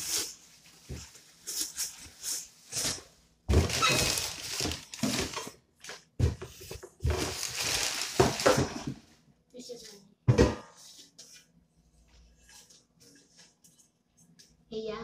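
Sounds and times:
plastic wrapping crinkling: 0.0s - 5.5s, 7.0s - 9.0s.

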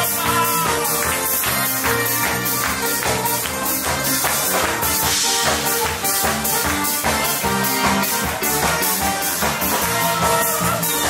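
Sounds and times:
drum kit beat: 0.0s - 11.0s
instrumental dance band music: 0.0s - 11.0s.

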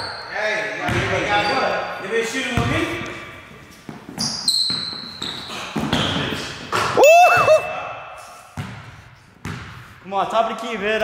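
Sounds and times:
sneaker squeaks: 0.0s - 2.0s, 3.6s - 7.7s
basketball bouncing on wood floor: 0.9s - 1.3s, 2.6s - 2.8s, 8.6s - 9.8s.

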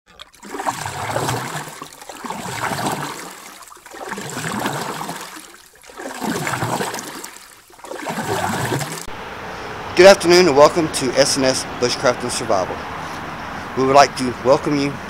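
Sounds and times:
rushing water: 0.1s - 9.1s.

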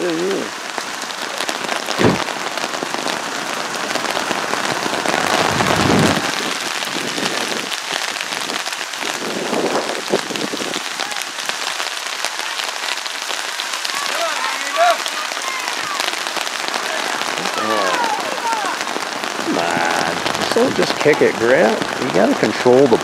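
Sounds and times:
heavy rain pouring: 0.0s - 23.0s
thump: 2.0s - 2.3s.

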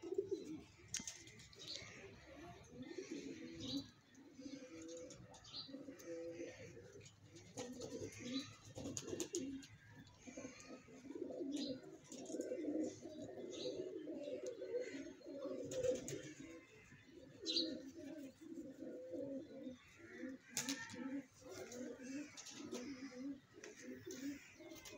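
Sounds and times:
pigeons cooing: 0.0s - 24.9s.

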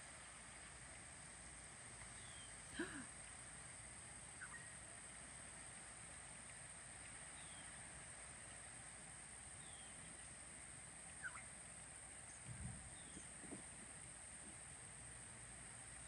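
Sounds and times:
steady high hiss: 0.0s - 16.0s
bird chirps: 4.4s - 4.7s, 11.2s - 11.5s.

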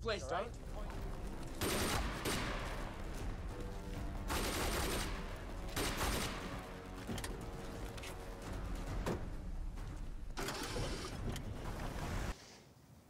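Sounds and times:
automatic rifle fire: 1.6s - 2.8s, 4.3s - 6.6s.

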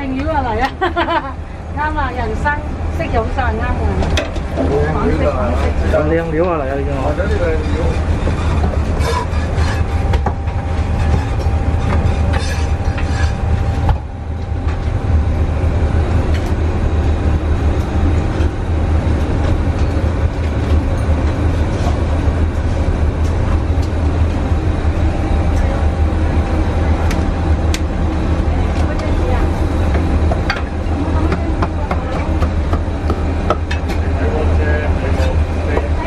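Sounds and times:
kitchen low roar: 3.3s - 14.2s.

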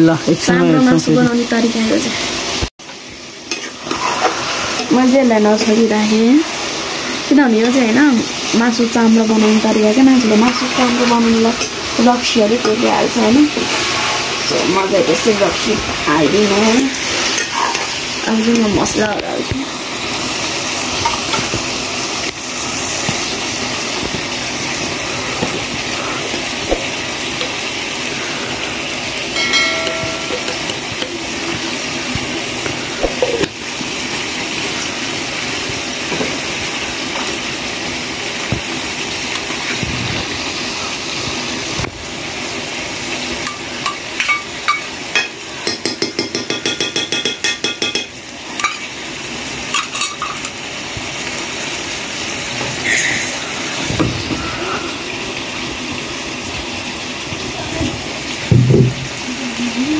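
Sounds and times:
chicken sizzling in pan: 0.0s - 59.9s
metal spoon clinking on bowl: 29.4s - 30.8s
steel dishes knocking: 29.4s - 31.1s, 44.3s - 48.8s.

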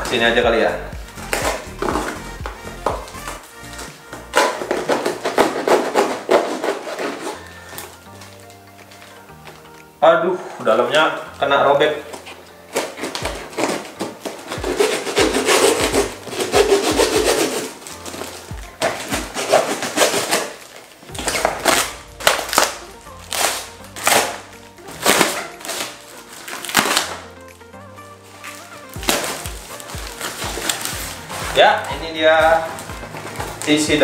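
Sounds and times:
background music: 0.0s - 34.0s
cardboard box tearing open: 4.3s - 7.9s, 12.1s - 27.3s, 28.5s - 31.6s.

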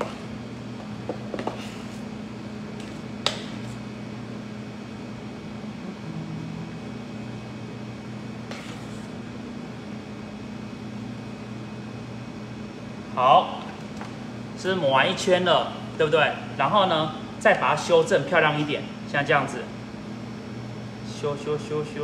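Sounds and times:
kitchen equipment hum: 0.0s - 22.0s
spatula scraping: 1.3s - 2.1s, 8.4s - 9.2s.

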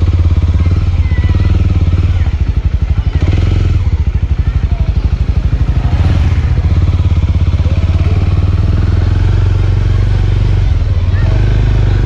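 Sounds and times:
motorcycle engine at low revs: 0.0s - 12.0s.

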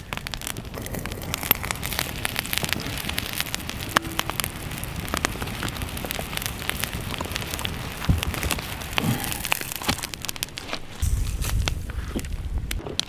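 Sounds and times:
pot boiling hard: 0.0s - 12.8s
campfire crackling and popping: 0.0s - 13.0s.

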